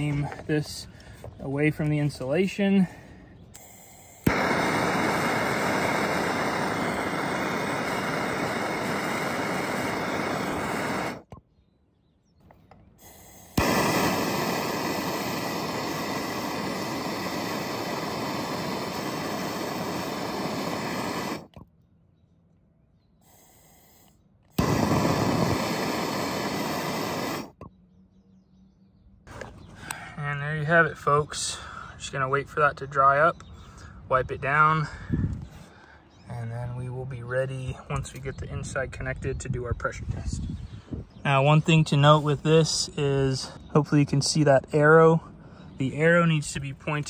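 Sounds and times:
gas torch flame hissing: 3.5s - 11.3s, 13.0s - 21.6s, 23.2s - 27.6s.

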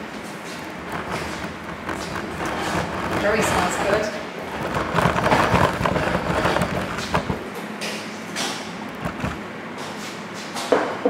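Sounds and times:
camera handling rumble: 0.6s - 7.4s, 8.9s - 9.4s.

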